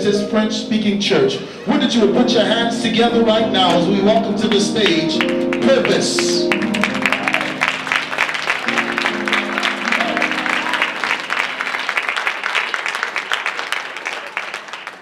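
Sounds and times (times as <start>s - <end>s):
held musical chords: 0.0s - 12.4s
audience applauding: 3.7s - 15.0s.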